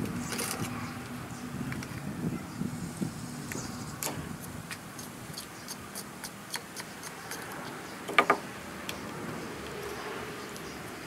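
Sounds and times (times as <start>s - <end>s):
sharp knocks: 8.1s - 8.4s.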